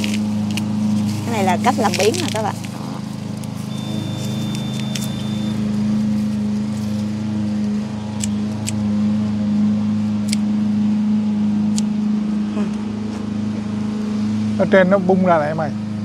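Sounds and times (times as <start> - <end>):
motor humming: 0.0 - 14.4
thin high tone: 3.7 - 5.6.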